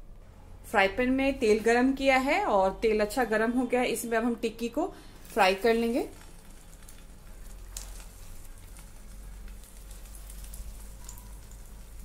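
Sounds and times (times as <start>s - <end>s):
hot oil sizzling in a pan: 5.1s - 12.0s.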